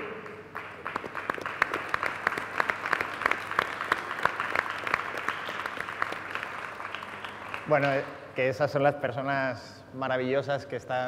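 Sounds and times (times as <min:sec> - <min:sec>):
audience applauding: 0:00.0 - 0:08.1
nearby sharp claps: 0:00.0 - 0:08.2.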